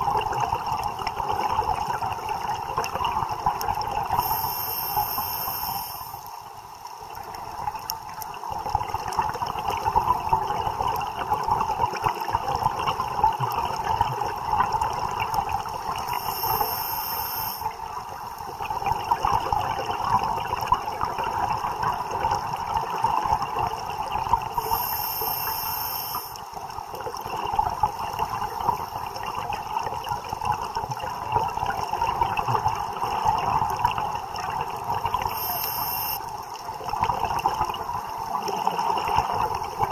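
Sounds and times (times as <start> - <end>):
diver inhaling through regulator: 4.1 - 6.3, 16.0 - 17.7, 24.6 - 26.4, 35.2 - 36.2.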